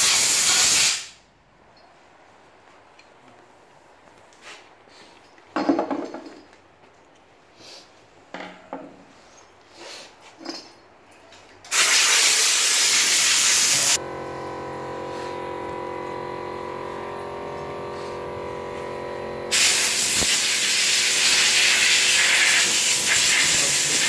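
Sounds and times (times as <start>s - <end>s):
compressed air blowing: 0.0s - 1.1s, 11.7s - 14.0s, 15.0s - 15.6s, 17.8s - 18.4s, 19.5s - 24.0s
machine humming: 14.0s - 20.6s.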